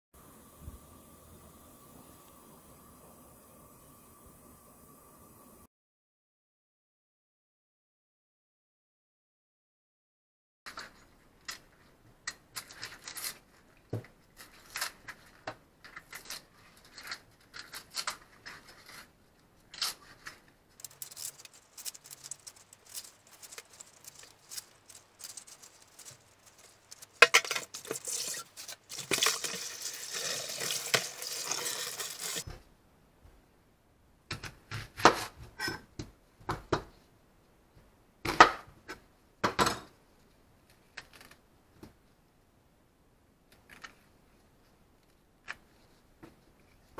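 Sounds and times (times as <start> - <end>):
onion skin crackling and tearing: 14.4 - 32.4.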